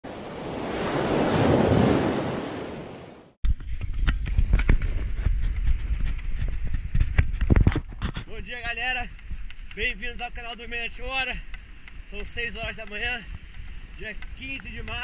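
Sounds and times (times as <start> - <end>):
surf noise: 0.0 - 3.4.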